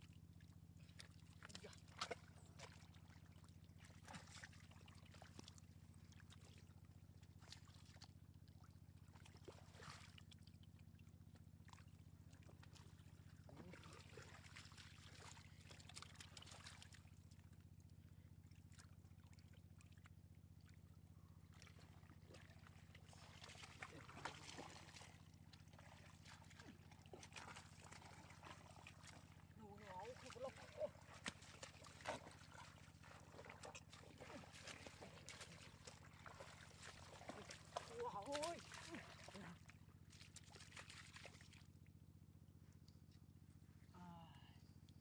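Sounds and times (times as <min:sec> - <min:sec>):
water sloshing and trickling: 0:00.0 - 0:43.6
steady low hum: 0:20.6 - 0:37.9.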